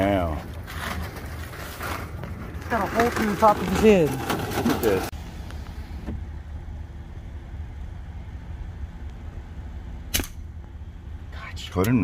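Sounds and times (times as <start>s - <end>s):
vehicle engine idling: 0.0s - 12.0s.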